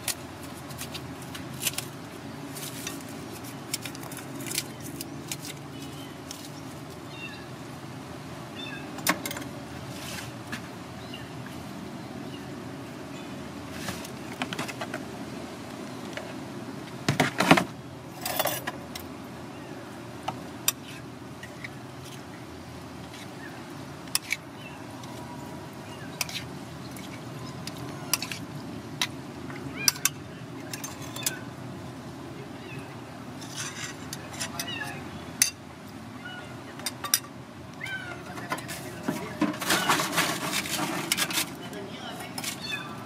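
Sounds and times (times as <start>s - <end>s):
street traffic hum: 0.0s - 43.0s
utensils clinking on ceramic plate: 18.2s - 18.8s, 26.2s - 28.4s, 29.9s - 31.4s.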